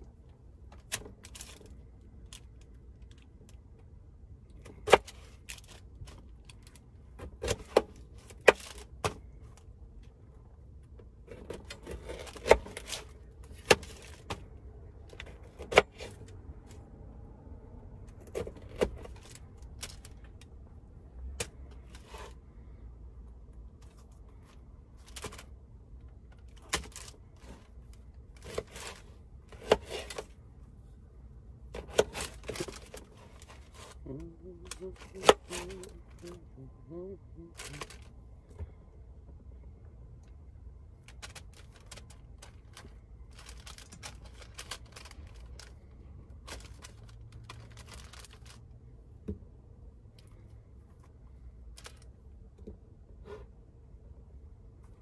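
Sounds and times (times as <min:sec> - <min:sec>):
rustling: 0:23.7 - 0:38.6, 0:40.9 - 0:48.8.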